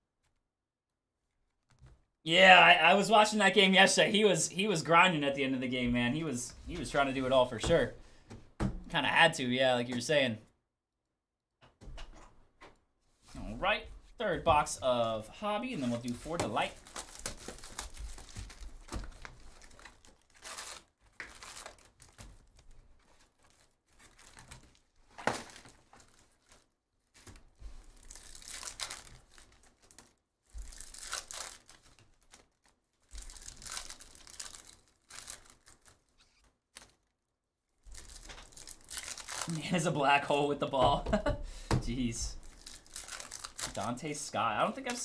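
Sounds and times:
plastic wrappers tearing and crinkling: 15.6 - 37.1, 37.9 - 39.9, 42.0 - 44.2.

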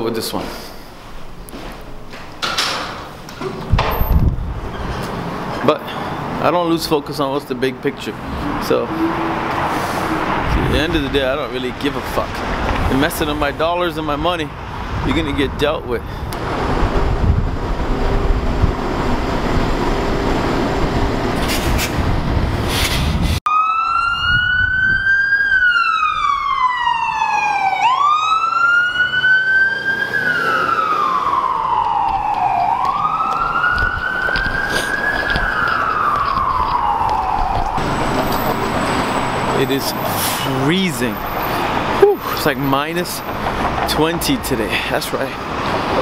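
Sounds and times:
street traffic: 0.0 - 46.0
streetcar passing: 4.2 - 15.1, 16.0 - 23.4, 25.5 - 46.0
emergency siren wailing: 8.3 - 10.7, 23.5 - 40.2.

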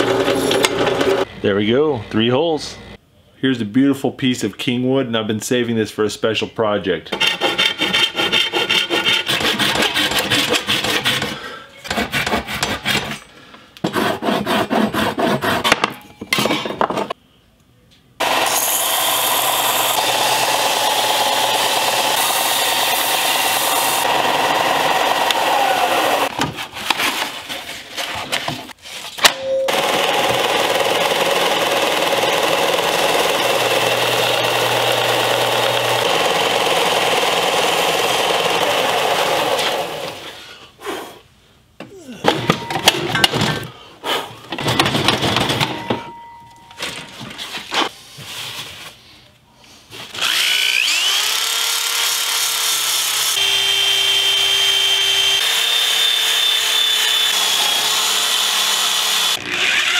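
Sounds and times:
belt sander running: 0.0 - 1.4, 18.2 - 26.3, 29.7 - 40.2, 50.2 - 59.9
hand saw cutting wood: 7.1 - 15.8, 18.2 - 27.2, 29.8 - 40.3, 50.1 - 59.9.

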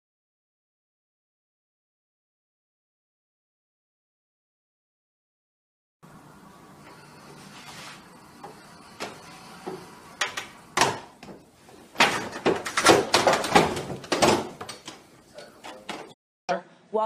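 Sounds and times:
pet door flap banging: 12.0 - 14.7.

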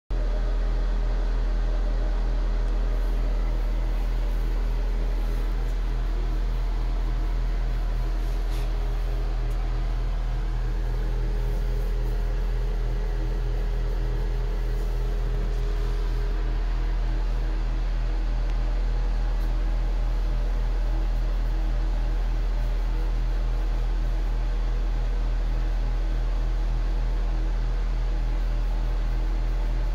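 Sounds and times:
low machine hum: 0.1 - 29.9.

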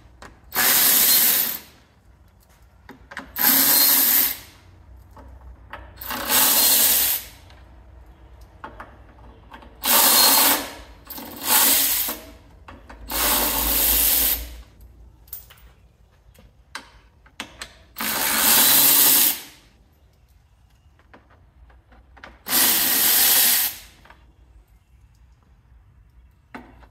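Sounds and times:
power ratchet running: 18.0 - 19.4, 22.5 - 23.8.

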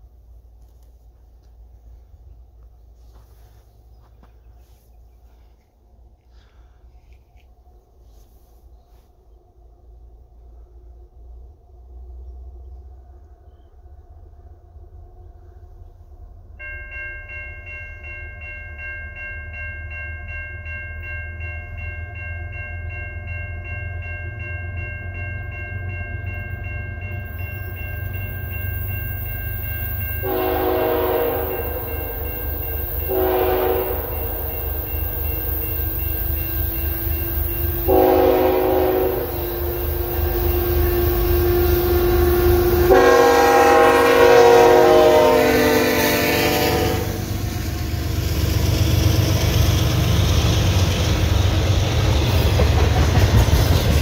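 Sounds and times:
freight train rumble: 0.0 - 54.0
bell ringing: 16.6 - 41.4
locomotive horn blasts: 30.2 - 34.8, 36.8 - 47.4.

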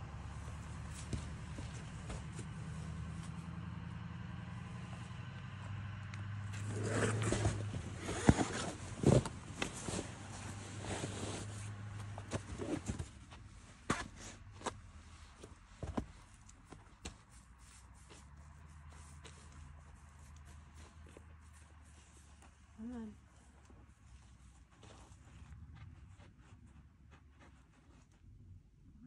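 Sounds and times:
shuffling feet: 0.4 - 3.4.

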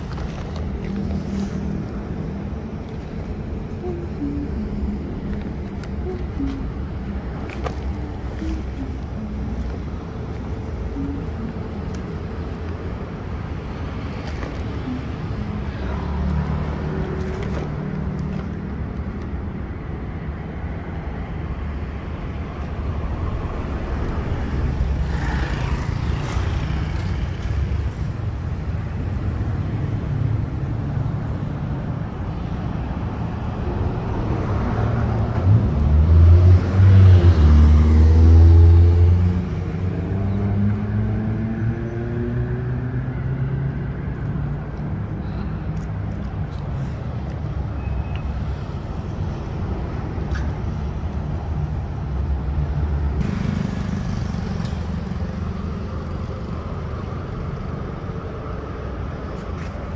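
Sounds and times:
traffic drone: 0.0 - 59.9
vehicle passing close by: 34.1 - 44.5.

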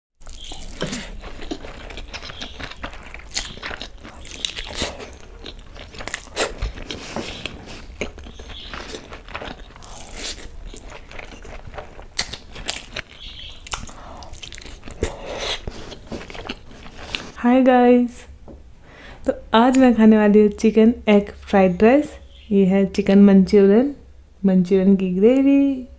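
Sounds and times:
person chewing food: 0.2 - 17.4
wet mouth clicks and smacks: 12.2 - 15.7.

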